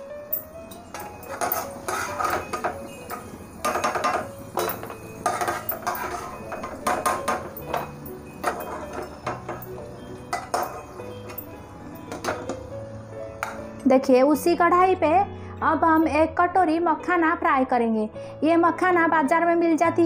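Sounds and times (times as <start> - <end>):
metal skimmer clinking on steel: 0.3 - 12.6.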